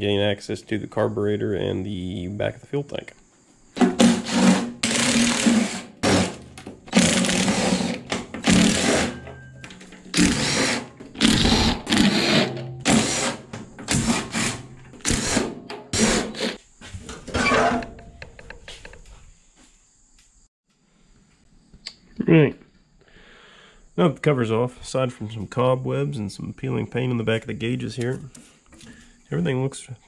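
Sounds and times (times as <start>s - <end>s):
impact driver bursts: 3.8s - 9.5s, 10.1s - 16.6s.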